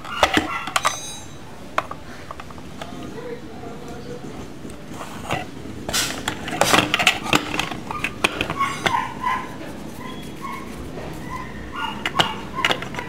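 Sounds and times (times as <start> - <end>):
plastic parts clicking and knocking: 0.0 - 3.0, 5.3 - 9.0, 12.0 - 13.0.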